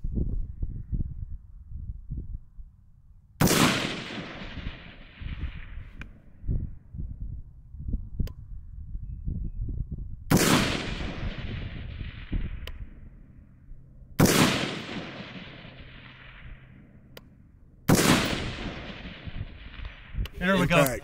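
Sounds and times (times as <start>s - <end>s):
rifle shots with echo: 3.4s - 6.1s, 10.3s - 13.2s, 14.2s - 21.0s.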